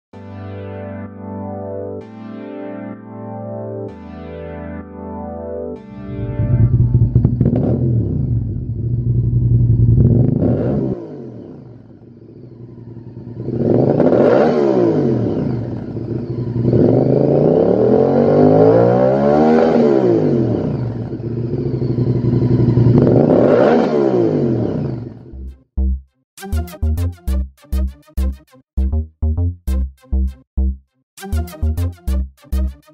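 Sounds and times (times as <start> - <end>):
motorcycle engine revving: 6.1 - 25.5.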